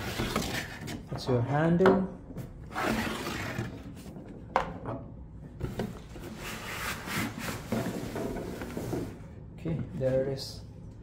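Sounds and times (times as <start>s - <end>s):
cardboard and plastic scraping: 0.0s - 1.0s.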